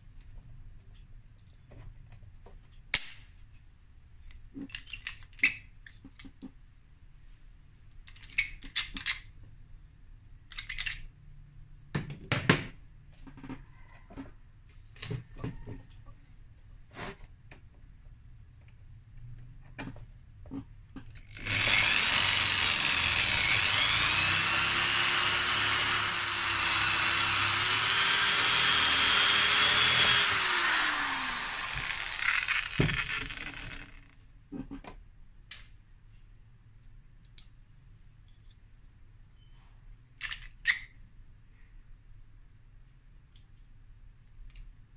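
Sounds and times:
electric drill whining: 21.3 - 34.2.

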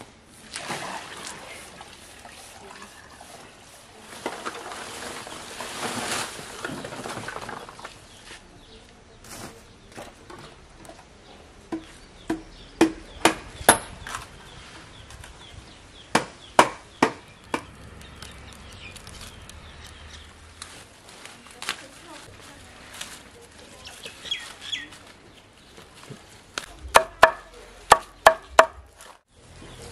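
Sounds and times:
wooden sticks knocking and cracking: 16.1 - 20.8, 26.1 - 29.2.

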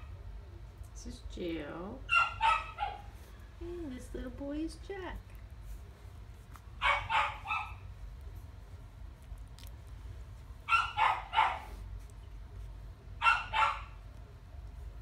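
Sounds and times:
puppies yipping: 2.1 - 3.2, 6.8 - 7.9, 10.6 - 11.8, 13.2 - 14.0.

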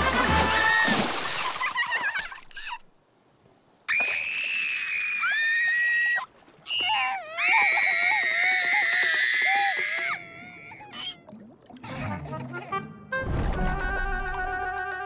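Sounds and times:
water splash: 0.0 - 2.8, 13.1 - 15.0
cartoon characters screaming: 3.9 - 11.1.

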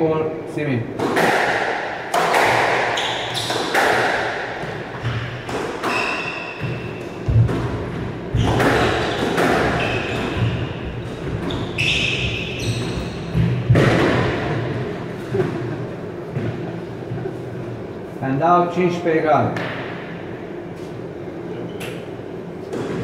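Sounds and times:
squash ball cracking off rackets: 1.0 - 7.8
sneakers squeaking on wooden floor: 2.9 - 3.8, 4.6 - 13.7.

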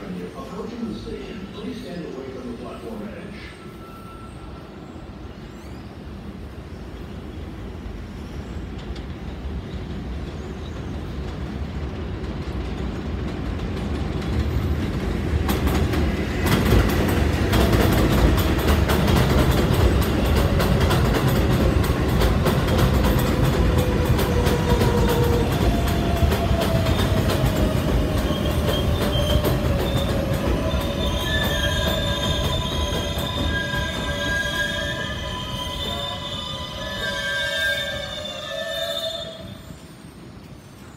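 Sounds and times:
train brake whine: 3.4 - 5.1, 28.2 - 40.9
train wheels clattering over rail joints: 8.7 - 34.4.

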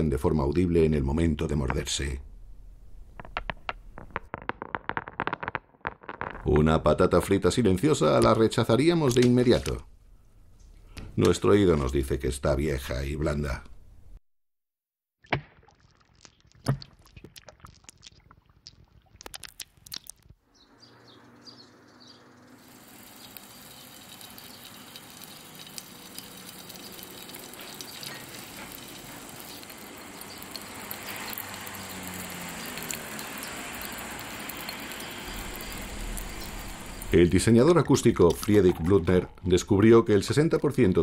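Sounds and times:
crunching cracks and crackles: 3.0 - 6.8, 15.3 - 20.4, 22.6 - 32.1
faint chirps: 20.5 - 37.3.

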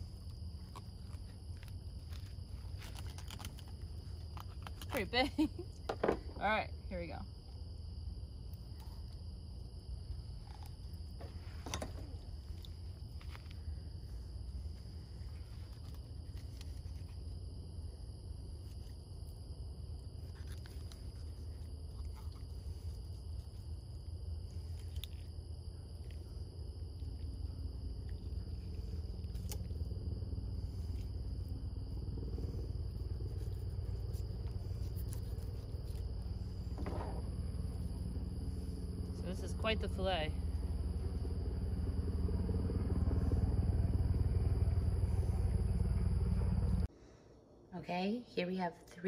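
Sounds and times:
low rumble: 24.4 - 47.7.

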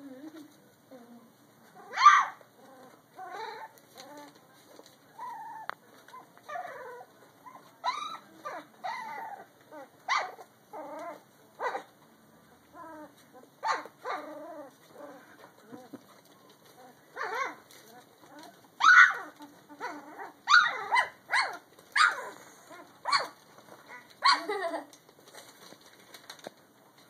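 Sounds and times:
puppies yipping and squealing: 5.2 - 11.9, 13.0 - 24.6.

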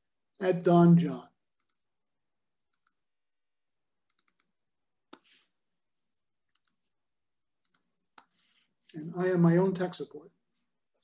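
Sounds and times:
computer mouse clicks: 1.6 - 1.8, 2.7 - 3.0, 4.0 - 4.5, 6.5 - 6.8.

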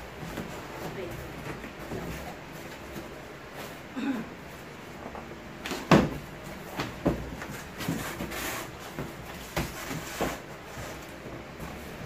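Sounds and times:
cardboard rustle: 6.6 - 12.0.

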